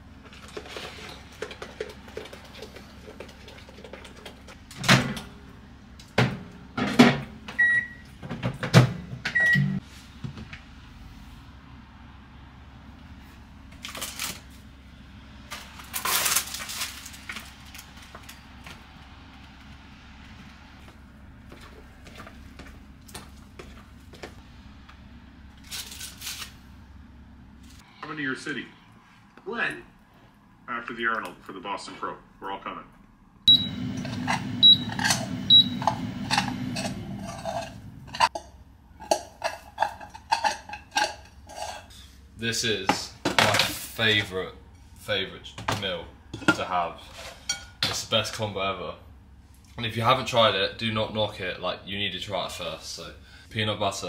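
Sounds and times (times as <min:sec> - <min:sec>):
steady low hum: 0:14.5 - 0:43.2
plastic packaging crinkling: 0:15.6 - 0:18.0
metal utensil scraping saucepan: 0:34.0 - 0:42.2, 0:46.4 - 0:47.9.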